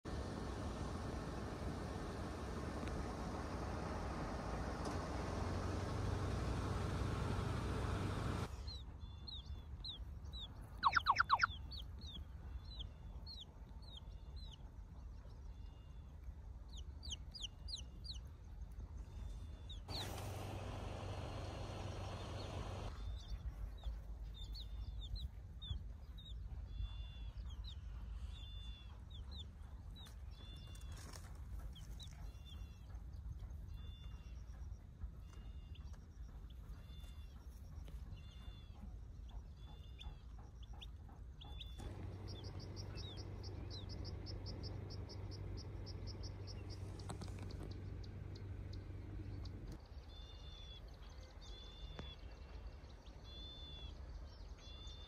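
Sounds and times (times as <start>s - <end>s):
baby chick peeping: 8.7s - 15.9s, 16.7s - 18.4s, 19.3s - 50.8s.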